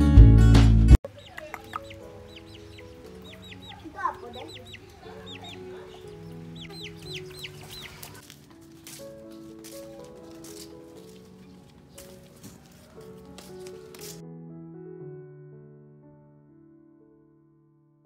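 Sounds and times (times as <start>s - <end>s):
chicks peeping: 1.0s - 8.2s
soft background music: 1.1s - 16.3s.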